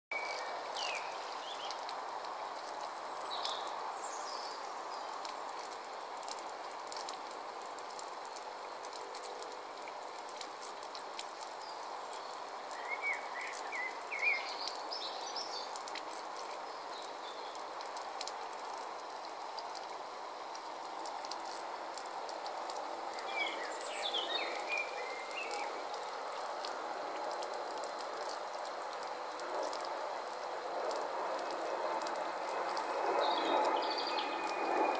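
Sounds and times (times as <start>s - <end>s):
fountain water trickling: 0.1s - 34.9s
birds chirping: 11.5s - 26.6s.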